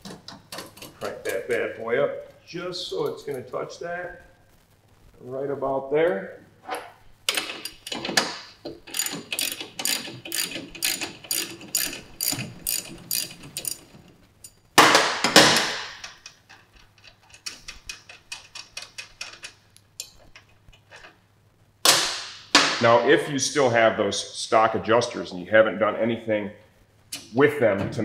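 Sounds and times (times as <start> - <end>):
ratchet wrench clicking: 8.9 - 13.9.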